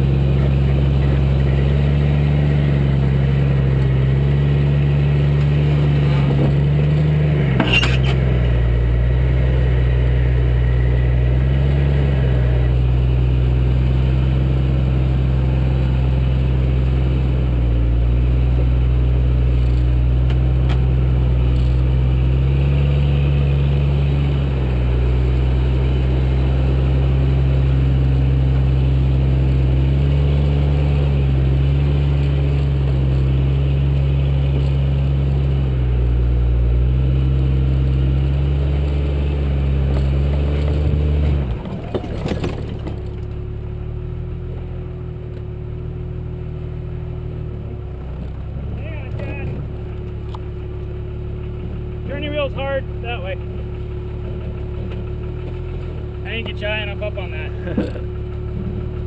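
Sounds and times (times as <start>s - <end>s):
engine under load: 0.0s - 59.0s
vehicle tipping knocks: 41.5s - 43.3s.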